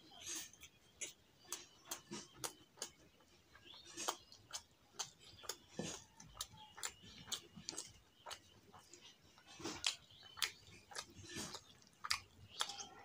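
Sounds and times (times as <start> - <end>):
fingers squishing rice on plate: 0.0 - 13.0
wet chewing and lip-smacking: 0.1 - 13.0.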